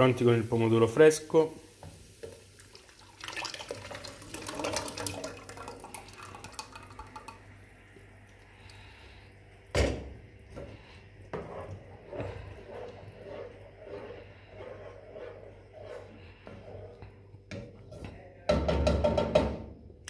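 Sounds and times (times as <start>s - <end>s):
sauce splashing and crackling in pan: 1.7s - 8.8s
wooden spoon stirring sauce: 10.5s - 18.8s.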